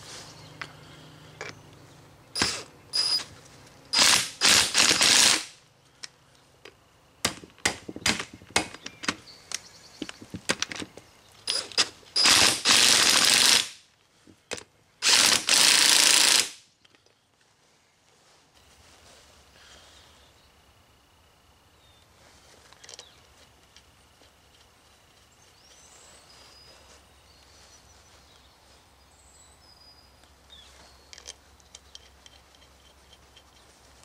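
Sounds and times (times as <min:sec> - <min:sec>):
clatter of tools and parts: 0:07.4 - 0:13.4, 0:22.5 - 0:23.9, 0:31.0 - 0:34.0.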